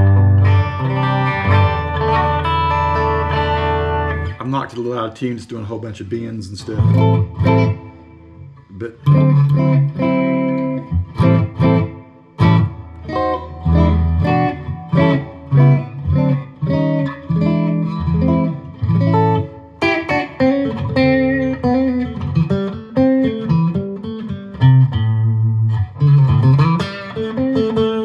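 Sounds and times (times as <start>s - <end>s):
electric guitar picked notes: 0.0s - 4.9s, 6.6s - 28.0s.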